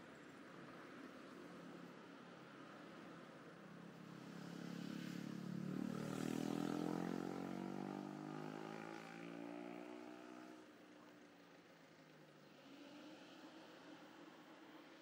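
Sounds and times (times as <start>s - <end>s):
motorbike passing: 4.3s - 10.6s.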